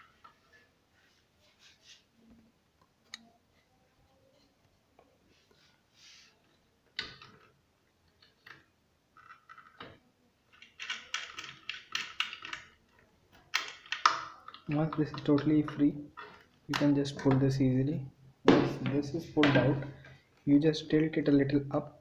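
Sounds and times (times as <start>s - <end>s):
plastic stand clicking and rattling: 10.6s - 12.8s.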